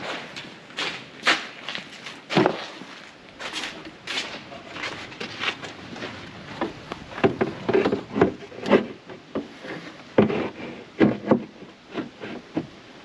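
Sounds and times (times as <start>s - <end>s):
parts knocking and clattering: 3.6s - 12.8s.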